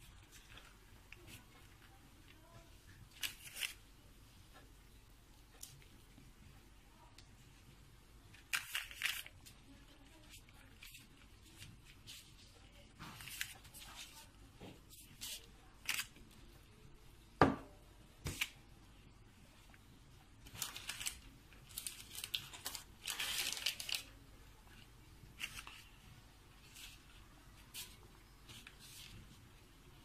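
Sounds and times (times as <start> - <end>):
dough rustling and scraping: 0.0 - 3.8, 7.4 - 16.6, 20.4 - 30.0.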